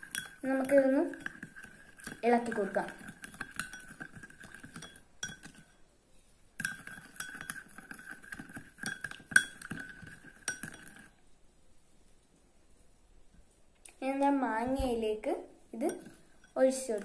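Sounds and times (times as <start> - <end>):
spoon clinking against a bowl: 0.0 - 5.8, 6.6 - 11.1, 15.8 - 17.0.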